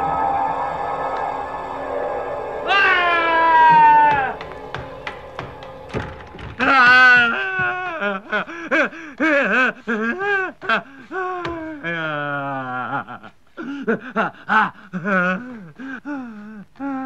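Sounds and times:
man wailing: 0:02.6 - 0:04.7
man whimpering and moaning: 0:06.7 - 0:17.0.

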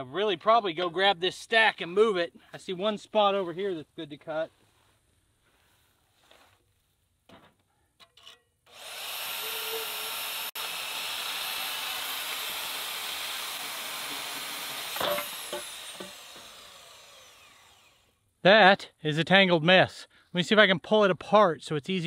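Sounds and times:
clunk: 0:07.3 - 0:08.6, 0:14.9 - 0:16.4
bandsaw cutting steel pipe: 0:08.2 - 0:18.1.

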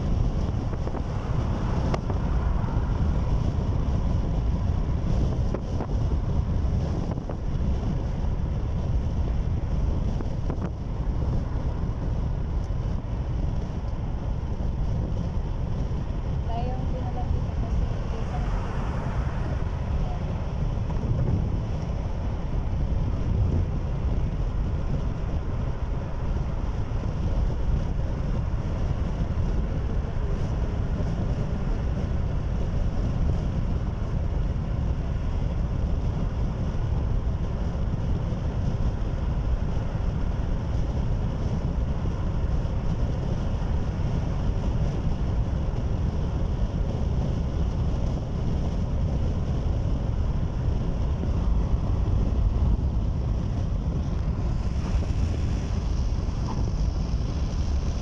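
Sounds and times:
car road and engine rumble: 0:00.0 - 0:58.0.

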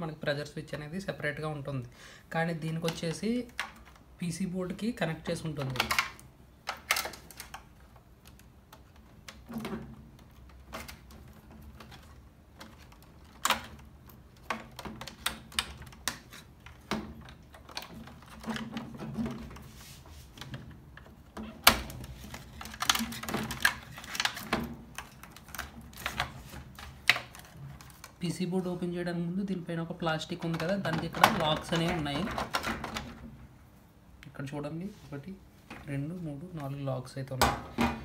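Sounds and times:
wires rustling: 0:00.7 - 0:37.4
plastic connectors clicking and snapping: 0:02.7 - 0:04.0, 0:05.4 - 0:19.6, 0:20.4 - 0:28.2, 0:30.2 - 0:33.3.

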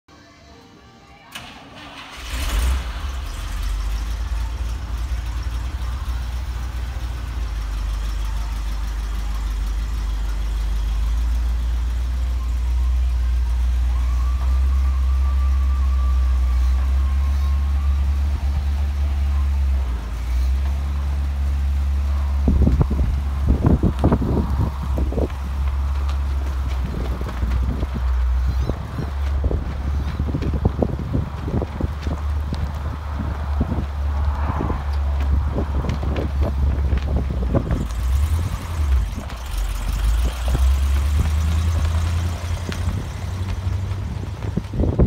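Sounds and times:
truck engine idling: 0:01.3 - 0:45.0.

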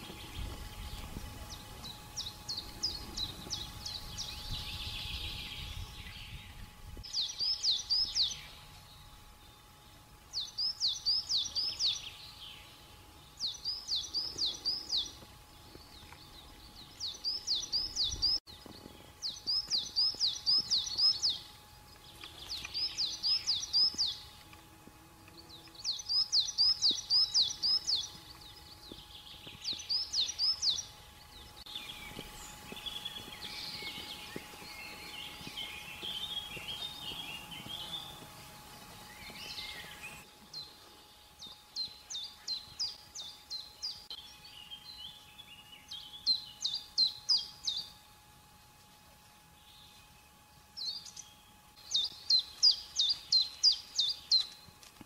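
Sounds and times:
wind rumble on microphone: 0:00.0 - 0:07.2
songbird singing: 0:00.0 - 0:48.9, 0:49.5 - 0:55.0
faint steady hum: 0:00.0 - 0:55.0.

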